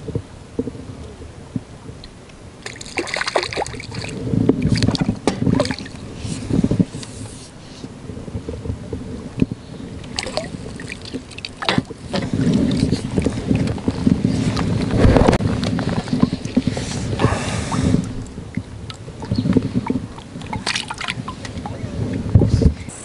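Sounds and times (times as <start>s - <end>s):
water splashing: 2.6s - 6.8s, 10.0s - 22.4s
knocks and rustling of rod and net: 2.6s - 22.9s.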